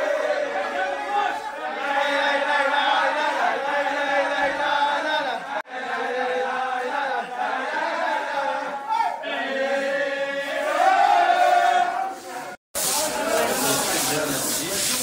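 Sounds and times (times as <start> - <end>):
men chanting in unison: 0.0 - 14.4.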